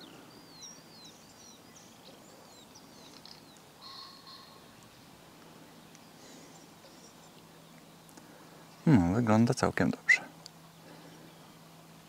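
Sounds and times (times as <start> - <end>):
outdoor background hiss: 0.0 - 12.0
songbirds chirping: 0.0 - 12.0
buzzy bird call: 3.1 - 4.8.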